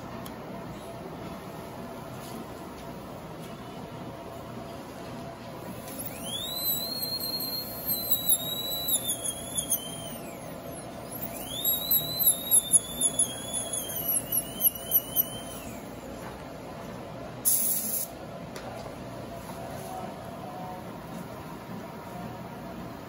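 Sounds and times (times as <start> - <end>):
dental drill high whine: 5.9 - 15.9.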